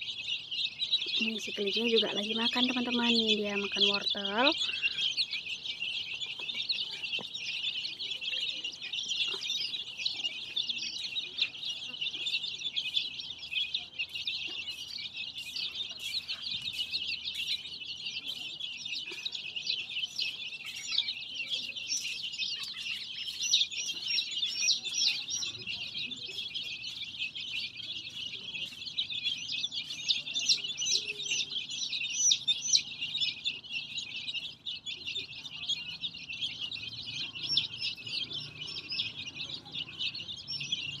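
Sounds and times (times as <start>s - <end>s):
chicks peeping: 0.0s - 41.0s.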